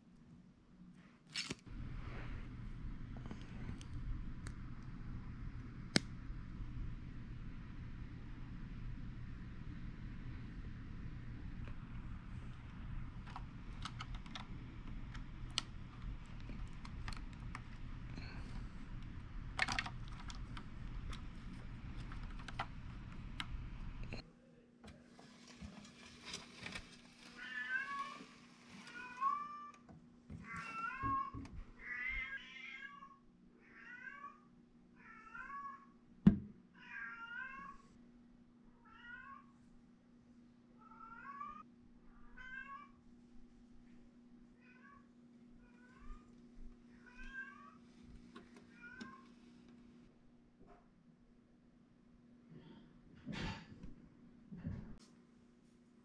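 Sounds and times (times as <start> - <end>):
steady hum: 1.7 - 24.2.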